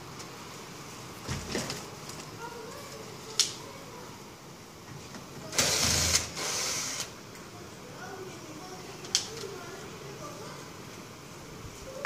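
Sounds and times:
power drill running: 5.5 - 7.1.

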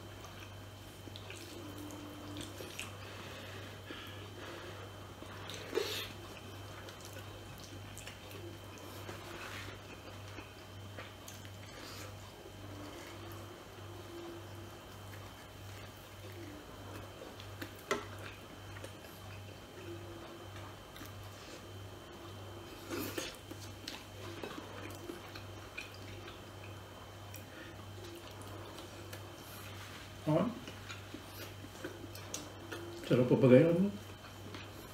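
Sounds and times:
steady low hum: 0.0 - 34.9
wet chewing and mouth smacks: 0.1 - 3.1, 5.2 - 13.5, 22.8 - 29.8, 30.6 - 33.1.

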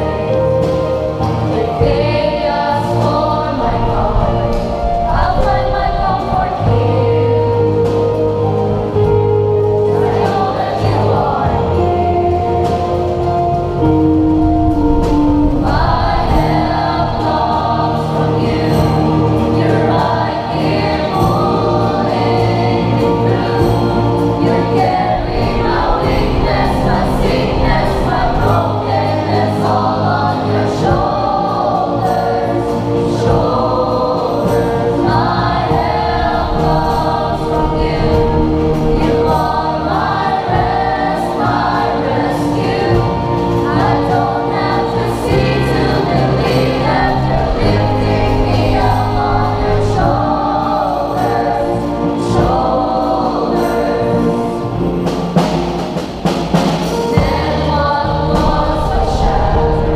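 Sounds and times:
choir singing: 0.0 - 59.9
live band playing: 0.0 - 59.9.

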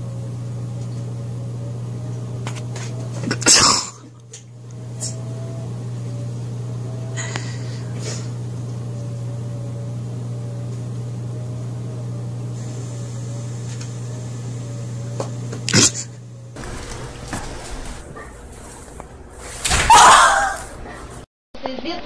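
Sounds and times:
mechanical hum: 0.0 - 21.3.

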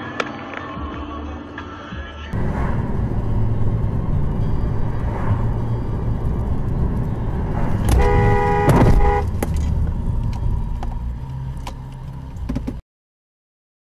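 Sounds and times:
car engine and road hum: 2.3 - 12.8
two-note car horn: 7.8 - 9.5.

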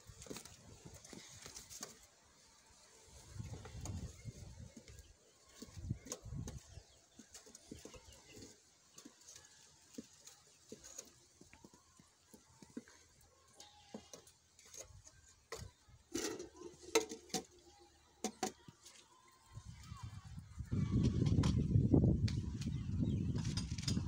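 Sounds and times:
wooden stick scraping metal pot: 14.0 - 17.5.

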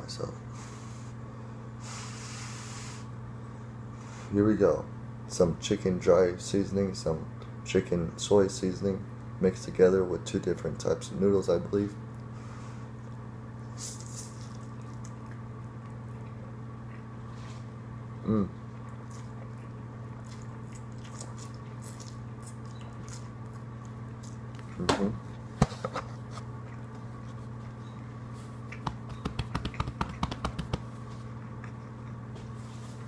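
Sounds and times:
background hum: 0.0 - 33.0
person chewing noodles: 14.0 - 17.3, 18.3 - 24.9, 26.2 - 29.2, 30.9 - 33.0
person murmuring: 18.2 - 18.6.

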